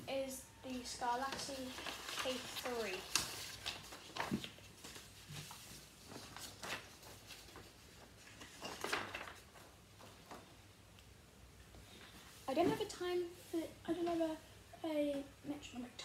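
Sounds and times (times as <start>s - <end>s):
paper rustling: 0.7s - 10.5s.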